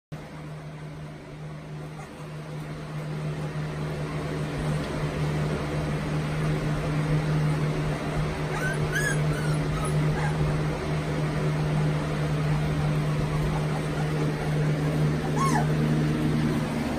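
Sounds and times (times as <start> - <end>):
steady low hum: 0.2 - 16.9
puppy whimpering: 1.9 - 2.7, 8.4 - 10.6, 13.2 - 16.5.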